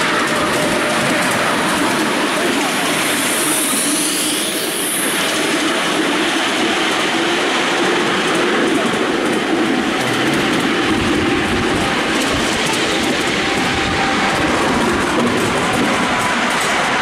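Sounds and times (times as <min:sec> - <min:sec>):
high wheel squeal: 0:00.0 - 0:06.0
train wheels rumbling on rails: 0:00.0 - 0:17.0.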